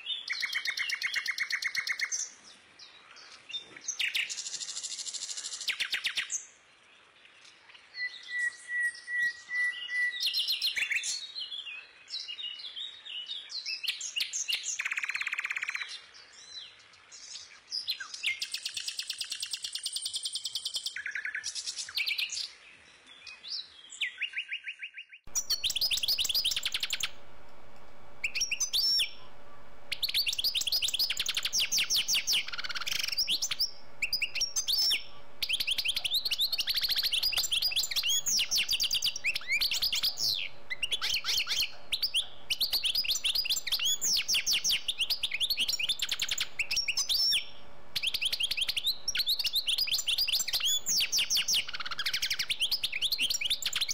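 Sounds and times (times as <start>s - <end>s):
faint steady hum: 25.3s - 53.9s
small bird chirping and trilling: 25.3s - 53.9s.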